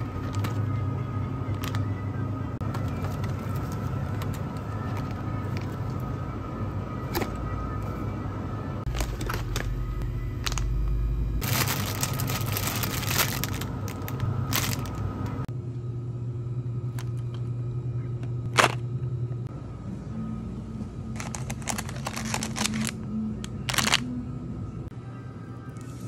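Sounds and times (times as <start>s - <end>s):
low hum: 0.0s - 26.0s
plastic packaging crinkling: 11.4s - 15.4s, 21.2s - 23.0s, 23.6s - 24.1s.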